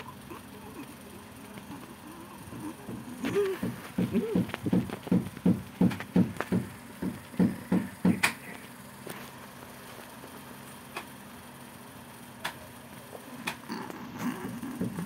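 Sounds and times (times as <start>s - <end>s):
faint hum: 0.0s - 15.0s
low thumping beat: 2.8s - 8.2s.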